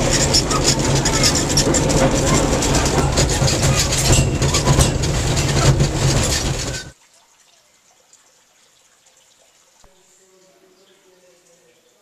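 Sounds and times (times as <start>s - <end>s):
carriage clattering and rattling: 0.0s - 7.0s
low hum of railway carriage: 0.0s - 7.0s.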